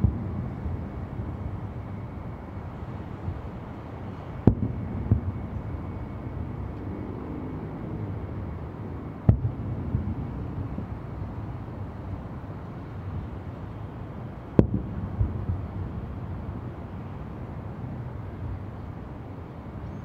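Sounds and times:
distant fireworks bursting: 0:00.0 - 0:06.7, 0:09.2 - 0:11.1, 0:14.6 - 0:17.3
low background rumble: 0:00.0 - 0:20.0.

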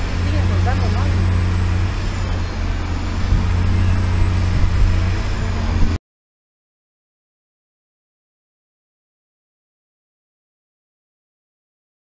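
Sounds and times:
low hum tones: 0:00.0 - 0:06.0
motor vehicle engine rumble: 0:00.0 - 0:06.0
outdoor noise: 0:00.0 - 0:06.0.

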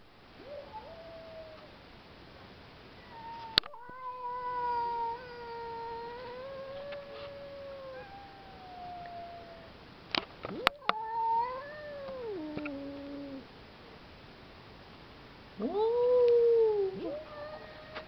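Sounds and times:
cats caterwauling: 0:00.4 - 0:01.7, 0:03.0 - 0:09.8, 0:10.5 - 0:13.5, 0:15.6 - 0:18.0.

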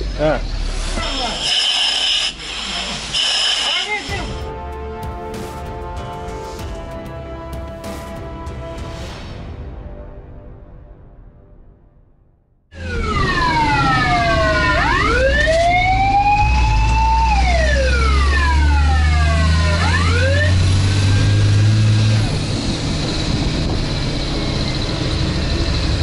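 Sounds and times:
truck engine drone: 0:00.0 - 0:08.7, 0:12.7 - 0:26.0
road noise: 0:00.0 - 0:08.9, 0:12.7 - 0:26.0
fire truck siren wailing: 0:12.7 - 0:26.0.

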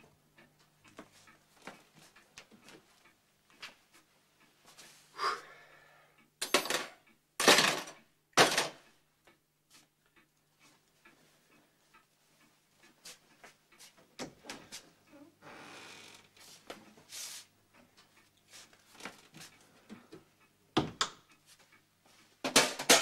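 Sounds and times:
tools clattering in metal toolbox: 0:06.4 - 0:08.8, 0:22.5 - 0:23.0.

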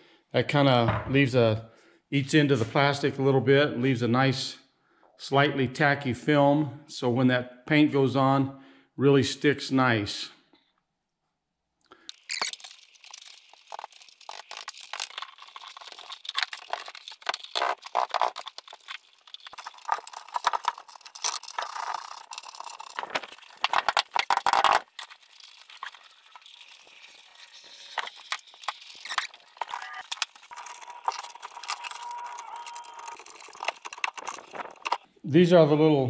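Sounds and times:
rubber weatherstrip rubbing: 0:12.1 - 0:35.1.

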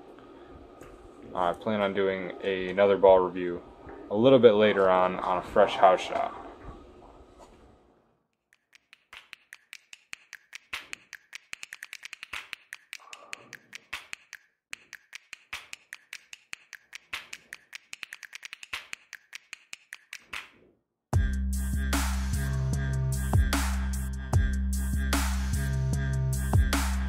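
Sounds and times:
rapid sharp taps: 0:08.5 - 0:20.5.

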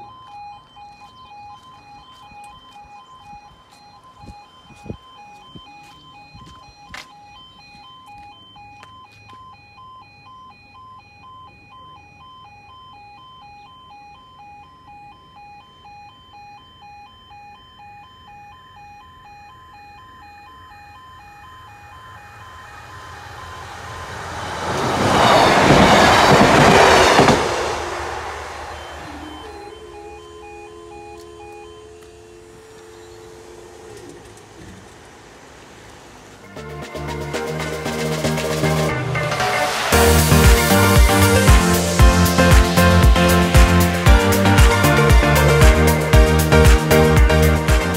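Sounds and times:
level crossing alarm two-tone pulses: 0:00.0 - 0:47.9
train rumble and wheel noise: 0:22.8 - 0:31.4.

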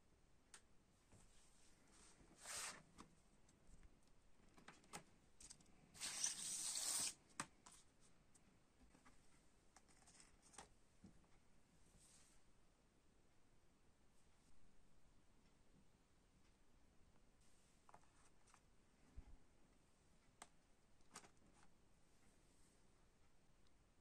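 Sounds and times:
paper sleeve rustling and sliding: 0:02.4 - 0:02.9, 0:05.9 - 0:07.2.

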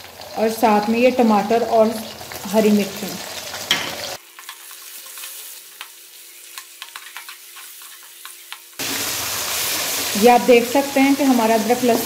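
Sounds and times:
vegetables sizzling in hot oil: 0:00.0 - 0:12.0.

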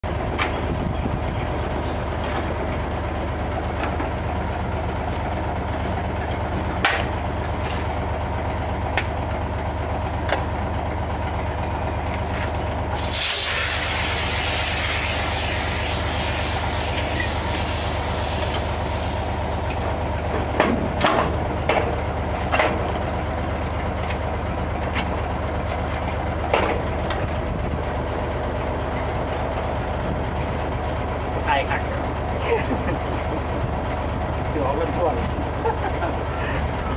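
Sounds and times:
diesel truck engine idling: 0:00.0 - 0:36.9
compressed air rushing: 0:13.0 - 0:19.8.

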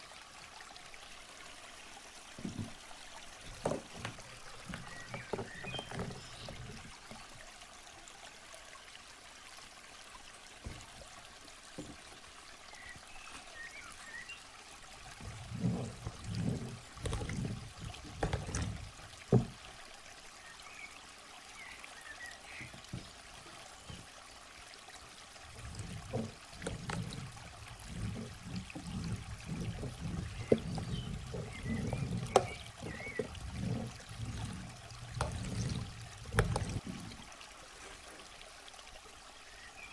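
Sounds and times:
water beads shifting and spilling: 0:15.0 - 0:19.6, 0:25.4 - 0:37.2.

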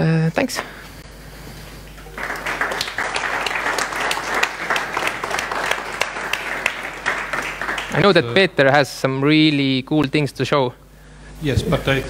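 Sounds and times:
audience applauding: 0:01.9 - 0:08.4.

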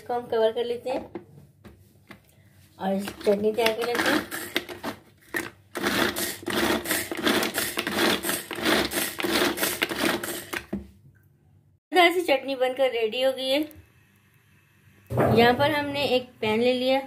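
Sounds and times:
pull-cord food chopper whirring: 0:03.8 - 0:10.6.

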